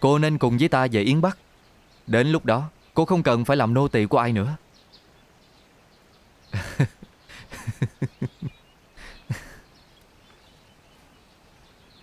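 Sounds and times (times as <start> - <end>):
faint birdsong: 0.0 - 12.0
person breathing: 7.3 - 7.6, 9.0 - 9.6.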